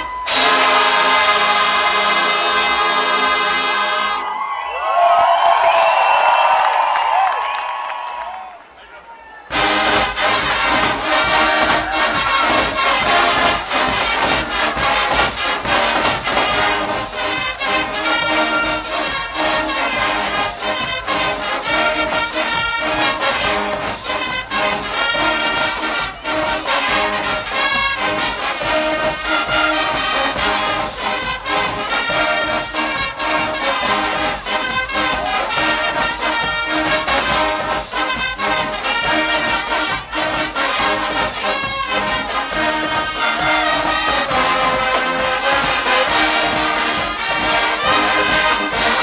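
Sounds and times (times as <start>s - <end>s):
brass band playing loudly: 0.0s - 5.1s, 9.5s - 49.0s
steady drum beat: 9.5s - 49.0s.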